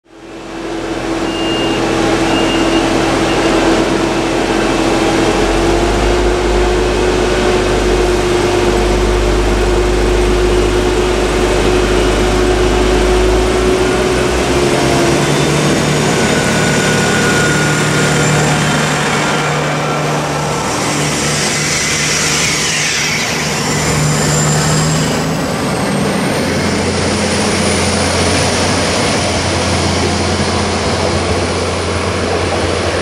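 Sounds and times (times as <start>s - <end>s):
diesel railcar engine droning: 0.0s - 33.0s
faint high whine: 15.2s - 25.4s.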